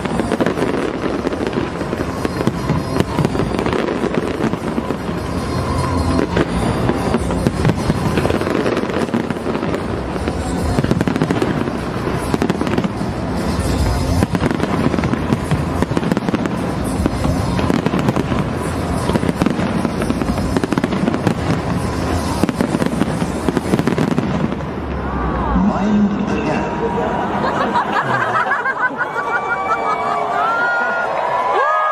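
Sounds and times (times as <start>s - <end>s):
fireworks bangs and crackling: 0.0s - 25.5s.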